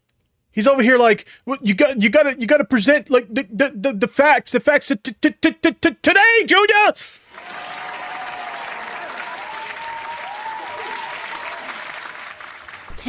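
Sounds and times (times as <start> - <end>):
faint cheers: 7.3 - 12.2
crowd applauding: 7.3 - 13.0.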